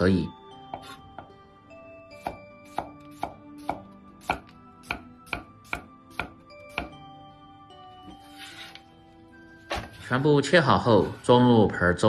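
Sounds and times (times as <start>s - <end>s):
faint background music: 0.0s - 12.0s
cleaver chopping cucumber on wood: 2.2s - 7.0s.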